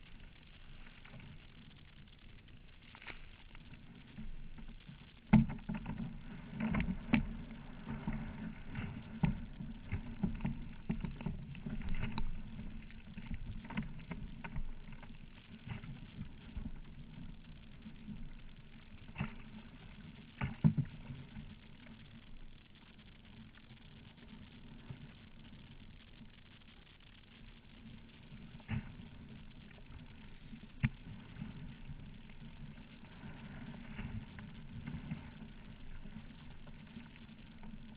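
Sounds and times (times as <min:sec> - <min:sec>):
steady low rumble: 0:00.0 - 0:37.9
kayak hull and paddle knocks: 0:05.3 - 0:12.3.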